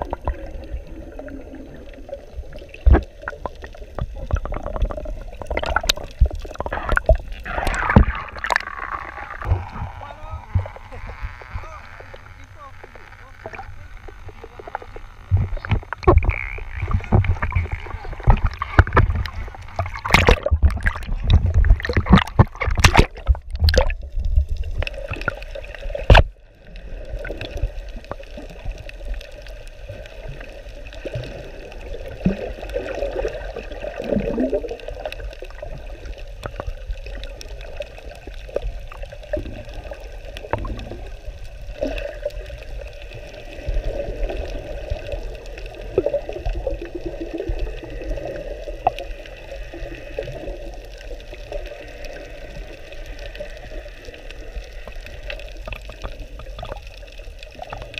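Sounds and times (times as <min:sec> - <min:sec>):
underwater gurgling: 0:00.0 - 0:57.9
water splashing: 0:00.0 - 0:57.9.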